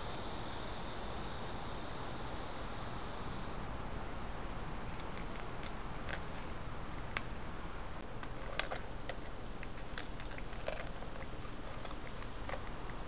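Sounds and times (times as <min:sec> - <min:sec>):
steady hiss: 0:00.0 - 0:13.0
cat chewing food in metal bowl: 0:04.9 - 0:06.5, 0:08.0 - 0:13.0.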